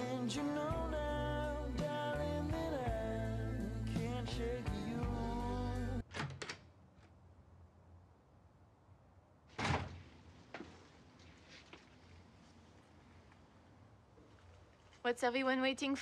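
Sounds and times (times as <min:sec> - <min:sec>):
loud thump: 0:09.5 - 0:10.0.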